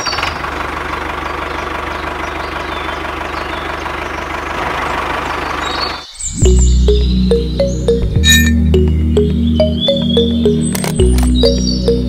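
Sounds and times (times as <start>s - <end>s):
tractor engine idling: 0.0s - 5.8s.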